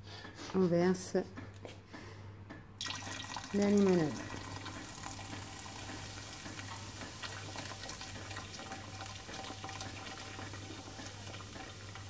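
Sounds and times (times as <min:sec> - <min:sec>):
fizzy drink pouring over ice: 0:02.8 - 0:11.4
fizzing crackle: 0:02.8 - 0:12.0.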